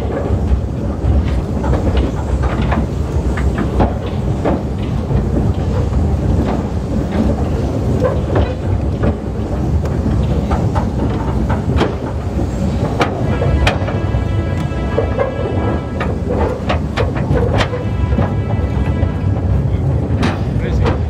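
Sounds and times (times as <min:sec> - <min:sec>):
train rumbling: 0:00.0 - 0:21.0
wheels clicking on rails: 0:00.0 - 0:21.0.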